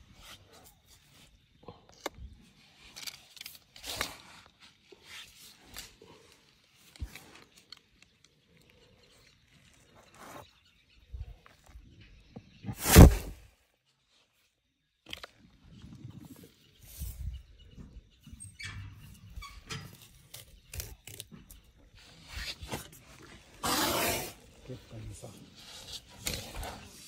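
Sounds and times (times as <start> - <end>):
elephant blowing air through trunk: 23.6 - 24.4.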